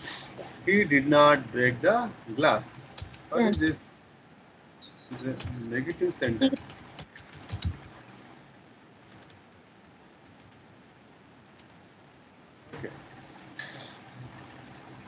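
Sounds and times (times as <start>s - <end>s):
low steady hiss: 0.0s - 15.0s
keyboard keystrokes: 2.9s - 3.8s, 6.6s - 7.9s.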